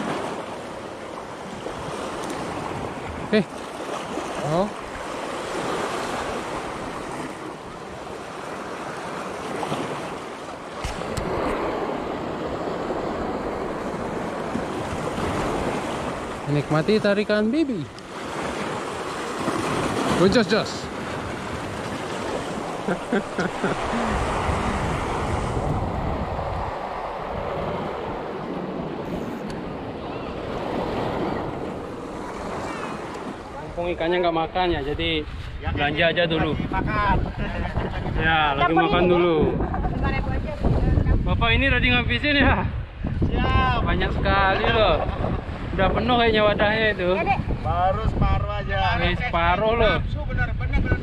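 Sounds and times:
waves washing against rocks: 0.0s - 34.0s
wind buffeting microphone: 4.8s - 16.8s, 17.8s - 51.0s.

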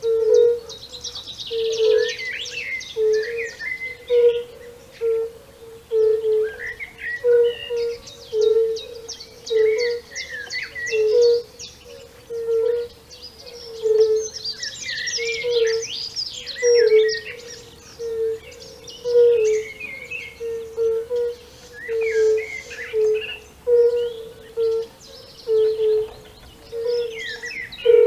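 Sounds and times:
songbirds chirping and singing: 0.0s - 28.0s
bird trill: 6.0s - 28.0s
toads hooting: 16.5s - 26.1s.

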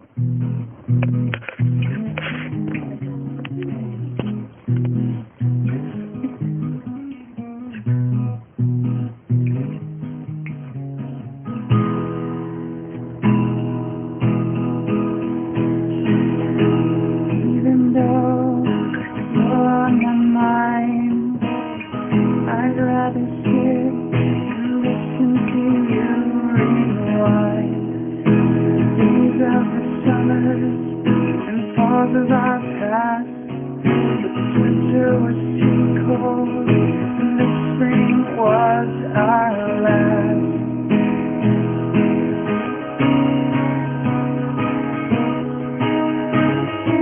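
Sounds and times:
acoustic guitar strumming: 0.0s - 47.0s
man singing: 17.2s - 40.8s.

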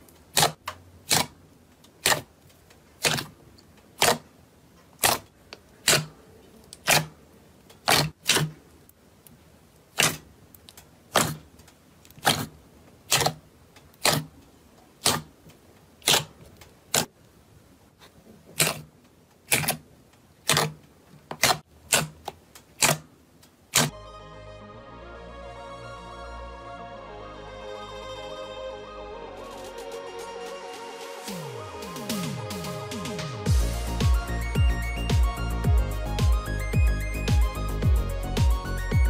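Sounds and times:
air popping from slime: 0.3s - 2.4s, 3.0s - 3.4s, 4.0s - 4.3s, 5.0s - 7.2s, 7.8s - 8.7s, 9.9s - 14.4s, 15.0s - 15.4s, 16.0s - 17.2s, 18.4s - 19.8s, 20.4s - 20.8s, 21.4s - 23.1s, 23.7s - 23.9s
fingers poking slime: 0.3s - 2.4s, 3.0s - 4.3s, 4.9s - 14.4s, 15.0s - 15.4s, 16.0s - 17.2s, 18.0s - 23.9s.

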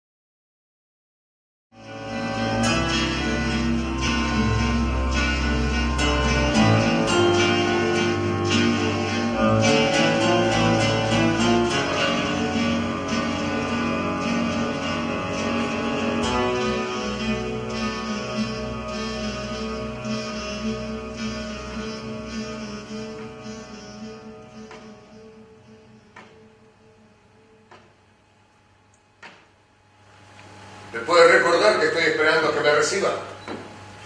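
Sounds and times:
instrumental music: 1.8s - 28.0s.

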